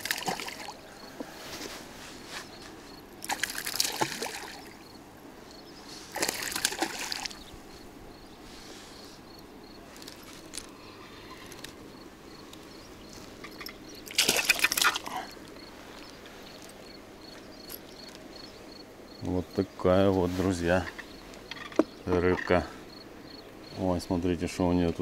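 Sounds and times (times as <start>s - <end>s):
fish splashing at water surface: 0.0s - 0.8s, 3.2s - 4.8s, 6.1s - 7.4s, 14.1s - 15.2s.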